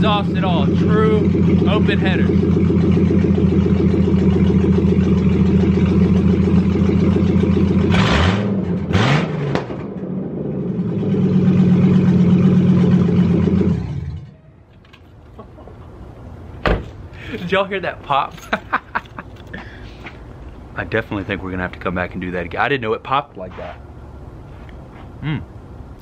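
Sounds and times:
pickup engine idling and revving: 0.0 - 14.5
exhaust pops: 0.0 - 15.0.

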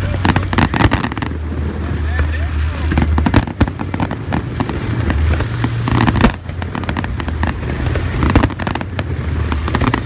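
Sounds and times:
fireworks bangs and crackles: 0.0 - 10.0
low rumble: 0.0 - 10.0.

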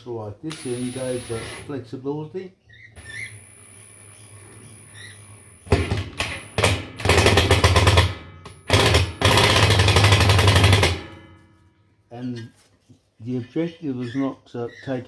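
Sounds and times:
power driver driving screws: 0.5 - 1.7.

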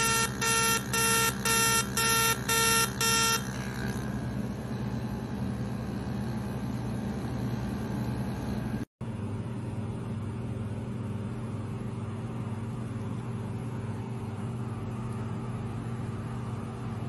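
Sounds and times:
laser short beeps: 0.0 - 3.5
steady low hum: 0.0 - 17.0.

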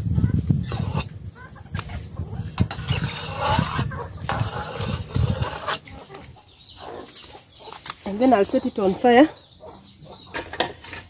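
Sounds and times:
metal ladle scraping a bowl: 0.6 - 1.1, 2.4 - 6.2.

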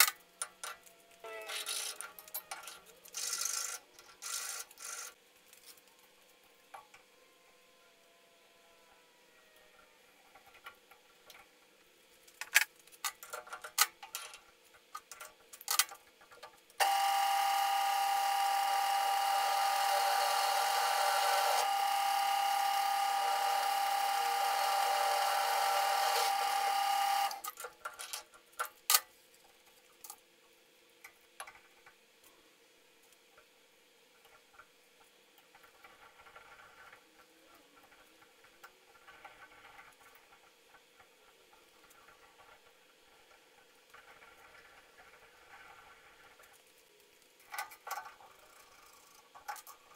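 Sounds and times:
drill press drilling steel: 16.8 - 27.4.

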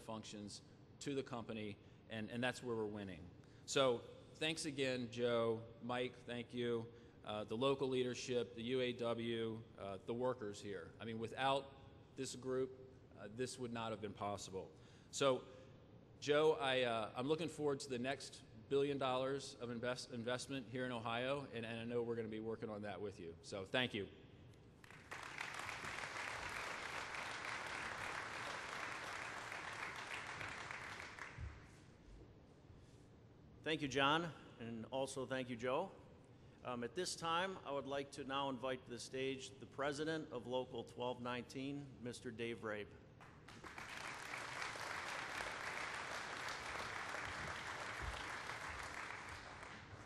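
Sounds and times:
audience applauding: 24.8 - 31.7, 43.5 - 50.0.

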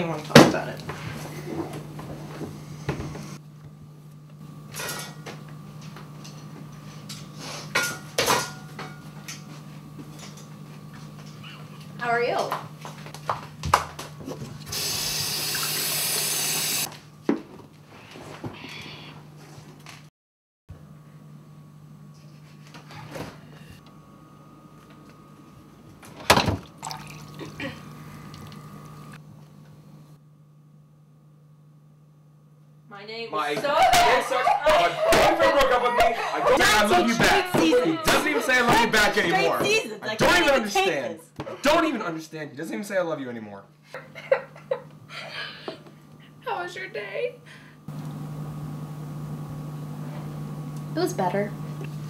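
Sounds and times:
low electrical hum: 0.0 - 20.0, 20.8 - 52.0
water pouring into a glass: 26.7 - 27.5.

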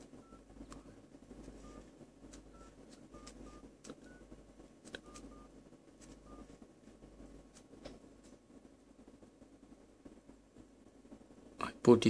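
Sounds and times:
phone keypad beeps: 0.2 - 0.9, 1.6 - 1.9, 2.5 - 4.3, 5.0 - 5.5, 6.2 - 6.5.

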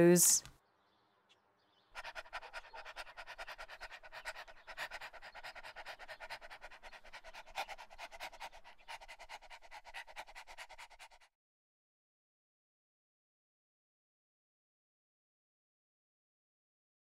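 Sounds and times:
dog panting: 2.0 - 11.3.

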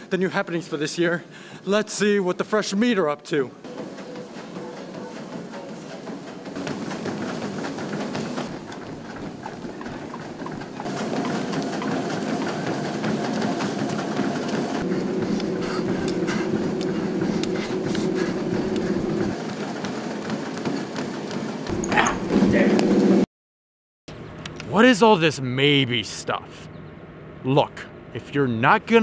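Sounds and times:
treadmills running: 0.0 - 23.2
footfalls on moving belts: 3.6 - 22.8.

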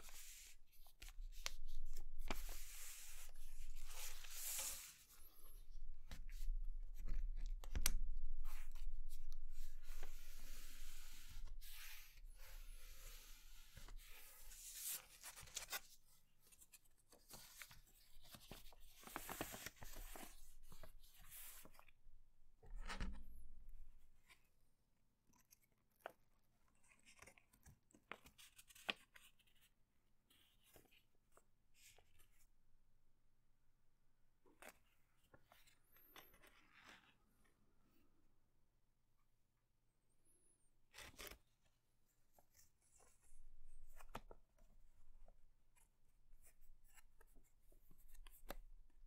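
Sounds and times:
paper rustling and crinkling: 14.0 - 21.8.

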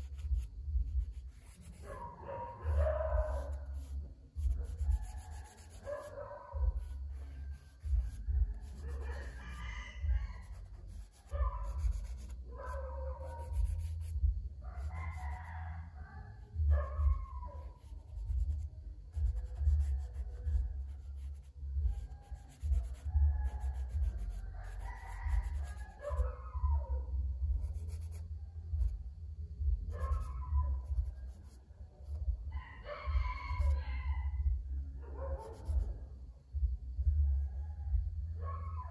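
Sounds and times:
charcoal scratching on paper: 0.0 - 14.2, 14.8 - 15.4, 17.0 - 26.2, 27.6 - 29.0, 30.0 - 32.2, 33.5 - 33.8, 35.5 - 35.9
low steady hum: 0.0 - 38.9
rooster crowing: 8.4 - 11.4, 14.7 - 16.4, 21.9 - 26.8, 32.5 - 34.5.

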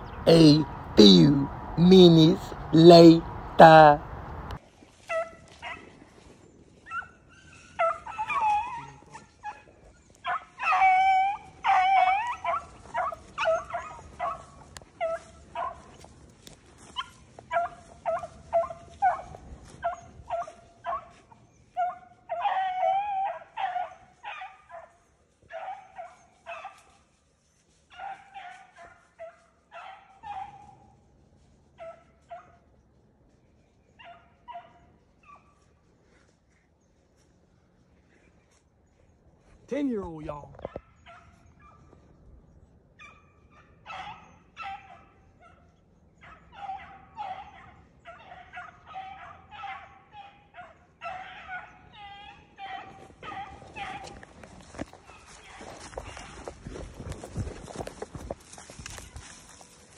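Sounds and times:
hounds yelping and bawling: 4.9 - 27.0, 27.6 - 31.0, 31.8 - 32.6, 33.8 - 36.2, 40.6 - 59.9.

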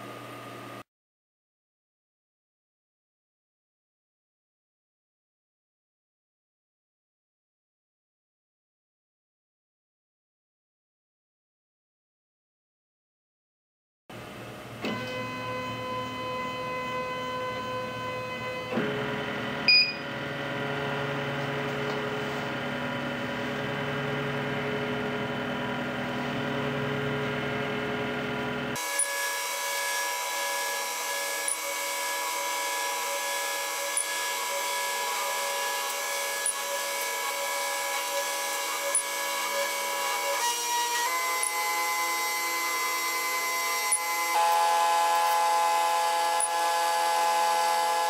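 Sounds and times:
stepper motors whining: 14.8 - 48.0.

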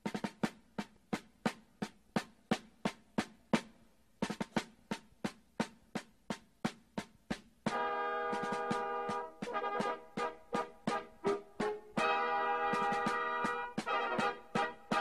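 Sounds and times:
drum playing march beat: 0.0 - 15.0.

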